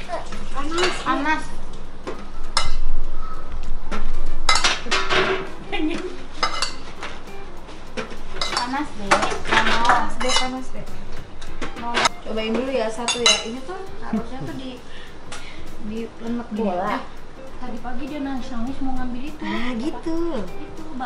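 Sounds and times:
metal spoon clattering on baking tray: 6.4s - 6.8s, 8.0s - 10.6s.

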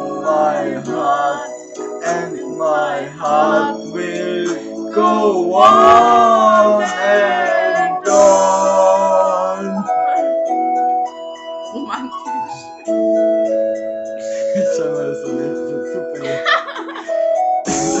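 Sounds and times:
man and woman singing: 0.0s - 10.2s
recorded backing music: 0.0s - 18.0s.

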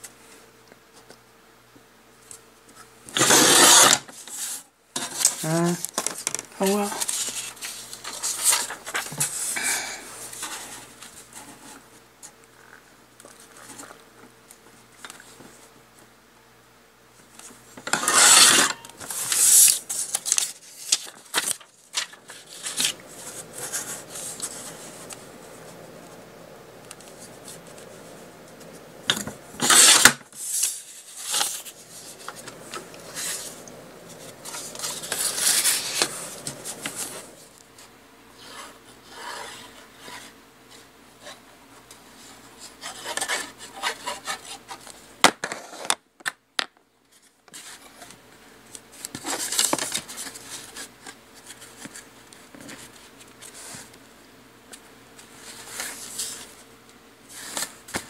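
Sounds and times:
paper rustling: 3.1s - 9.6s, 17.4s - 26.2s, 26.8s - 41.4s, 42.2s - 46.0s, 48.9s - 54.0s, 54.7s - 56.7s, 57.3s - 58.0s
paper cutter rasping: 3.2s - 4.0s, 17.9s - 19.7s, 29.6s - 30.2s.

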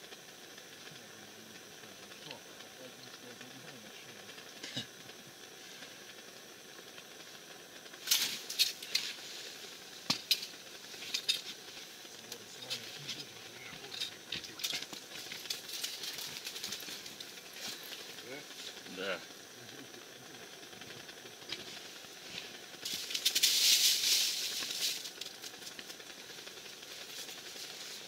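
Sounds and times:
gas burner hissing: 0.0s - 28.0s.

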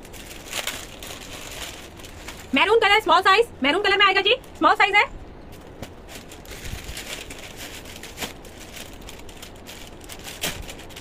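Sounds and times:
fabric rustling: 0.1s - 2.9s, 5.5s - 11.0s.

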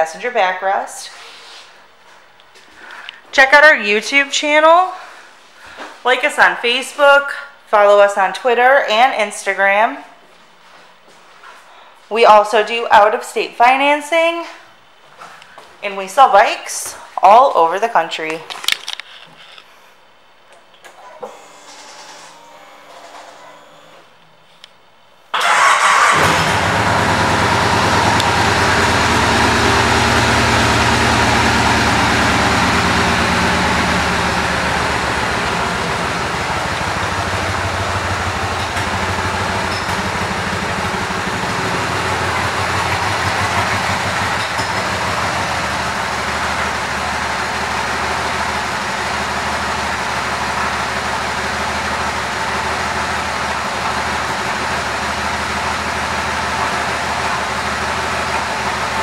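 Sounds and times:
motorcycle engine starting and idling: 25.3s - 59.0s.

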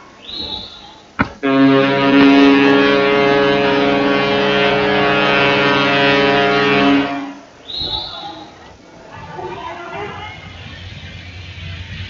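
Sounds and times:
ship's horn blast: 1.3s - 7.6s.

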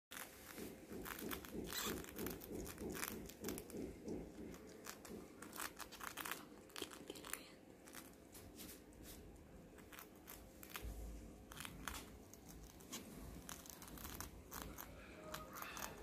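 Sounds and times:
rats gnawing cracker: 0.1s - 16.0s.

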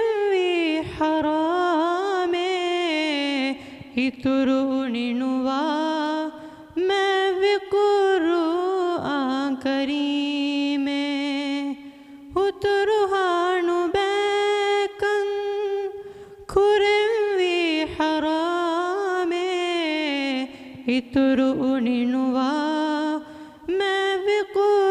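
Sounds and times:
boy singing unaccompanied: 12.4s - 15.9s, 16.5s - 24.9s.

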